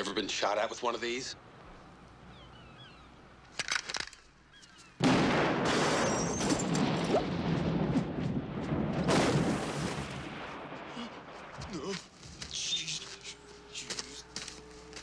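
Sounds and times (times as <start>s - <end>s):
big rumbling explosion: 5.0s - 11.8s.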